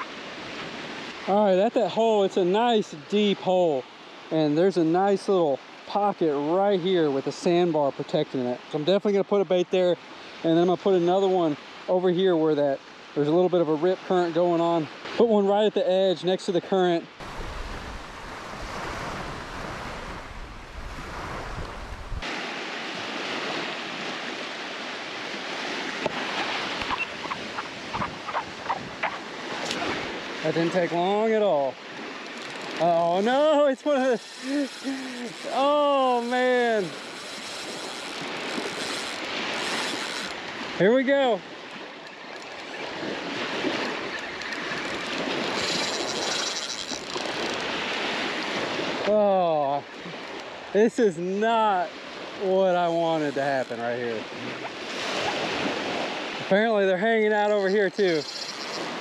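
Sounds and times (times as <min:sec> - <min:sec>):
small waves washing on beach: 0:00.0 - 0:59.0
wind buffeting microphone: 0:17.2 - 0:22.2, 0:26.0 - 0:30.5
spinning fishing reel buzzing: 0:31.8 - 0:40.5, 0:42.0 - 0:48.1, 0:57.6 - 0:59.0.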